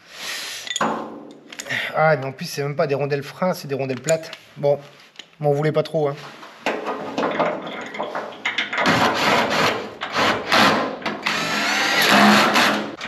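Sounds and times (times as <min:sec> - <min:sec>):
cordless drill driving screws: 0:08.9 - 0:12.9.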